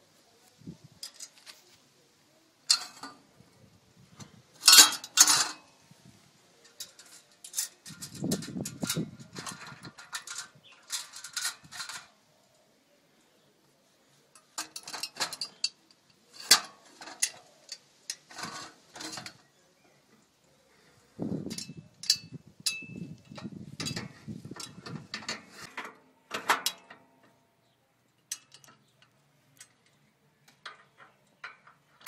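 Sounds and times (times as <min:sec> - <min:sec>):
metal clanks and clicks: 0:02.7 - 0:03.2, 0:04.2 - 0:05.7, 0:06.6 - 0:12.1, 0:14.4 - 0:19.5, 0:21.5 - 0:27.4, 0:28.1 - 0:32.0.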